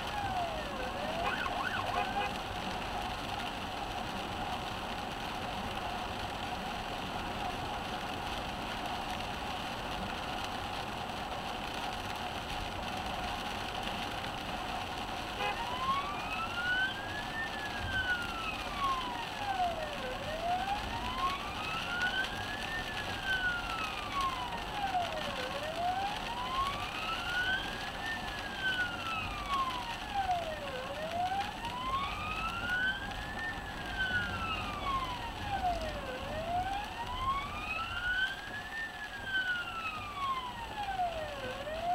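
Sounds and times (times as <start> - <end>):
siren wailing: 0.0 - 2.5, 15.4 - 41.9
road and rain noise: 0.0 - 41.9.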